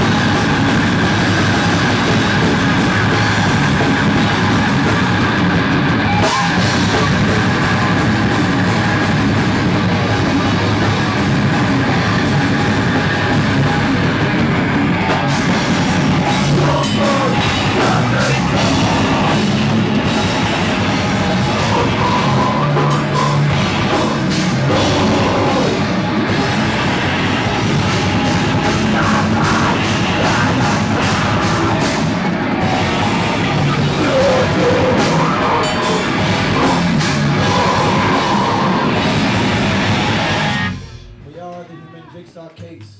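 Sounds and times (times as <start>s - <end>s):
rock band playing live: 0.0s - 41.2s.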